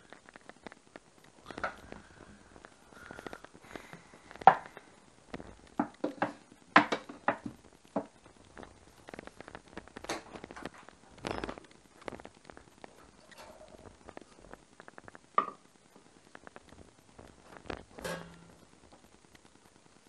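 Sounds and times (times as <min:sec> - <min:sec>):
kitchen clatters: 0:17.8 - 0:18.5.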